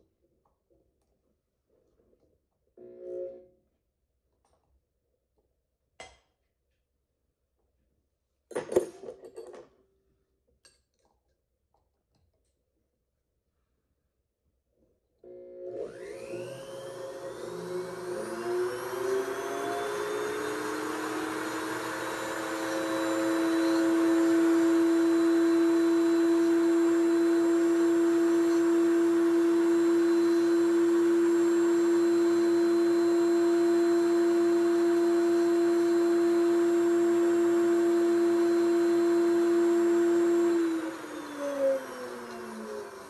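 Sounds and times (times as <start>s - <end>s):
flex-shaft motor high whine: 15.8s - 43.0s.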